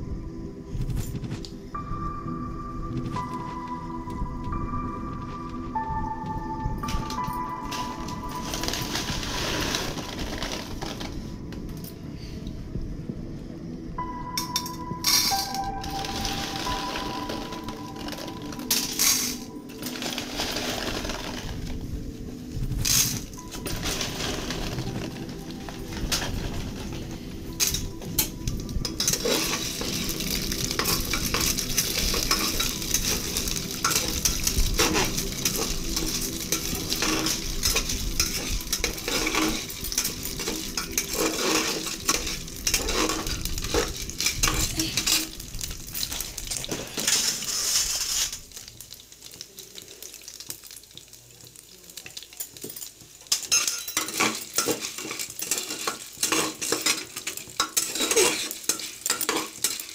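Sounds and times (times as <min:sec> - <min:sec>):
oil sizzling: 0:02.9 - 0:11.8, 0:13.6 - 0:59.9
kernels rattling against metal: 0:27.6 - 0:48.4
spatula scraping metal pot: 0:54.0 - 0:59.8.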